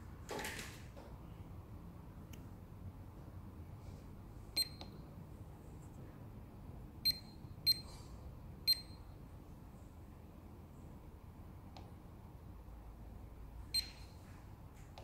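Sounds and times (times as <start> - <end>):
short high-pitched beeps: 4.6 - 4.9, 7.0 - 7.9, 8.7 - 9.1, 13.8 - 14.1.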